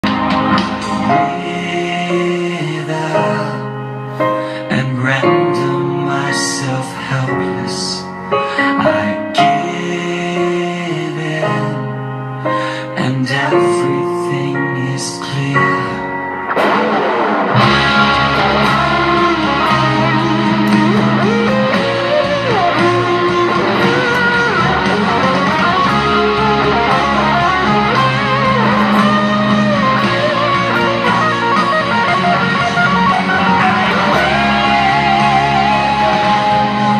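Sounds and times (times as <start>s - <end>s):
band with bass and drums: 0.0s - 1.3s, 16.5s - 36.9s
electric guitar solo: 16.0s - 36.9s.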